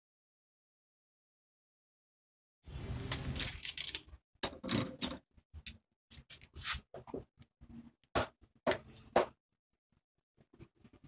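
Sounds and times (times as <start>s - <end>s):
metal parts clicking and clinking: 8.8s - 9.2s.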